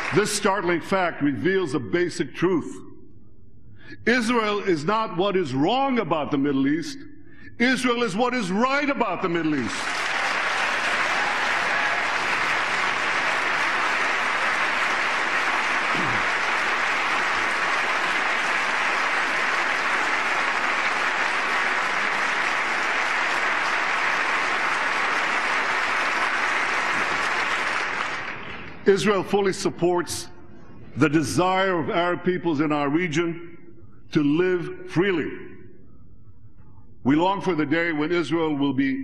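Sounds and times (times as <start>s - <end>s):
crowd applauding: 0.0s - 0.6s, 9.6s - 28.8s.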